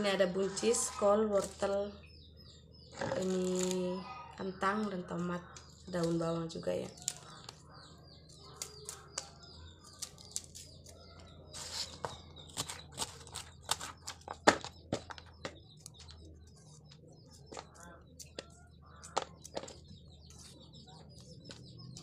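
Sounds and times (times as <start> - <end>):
knife cutting vegetables: 10.0 - 14.7.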